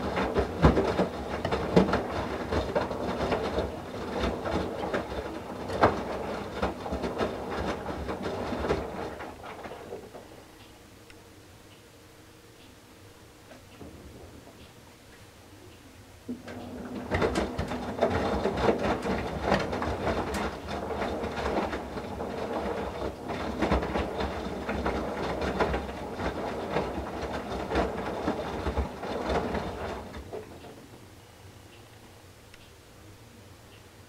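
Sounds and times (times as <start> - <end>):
wet laundry sloshing and thudding: 0.0 - 10.3, 16.3 - 30.9
washing machine motor humming: 0.0 - 10.6, 13.2 - 31.6.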